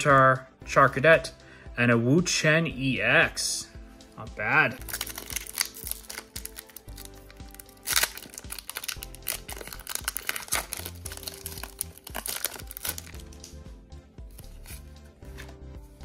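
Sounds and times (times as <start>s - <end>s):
background music: 0.0s - 16.0s
foil wrapper crinkling and tearing: 4.8s - 13.5s.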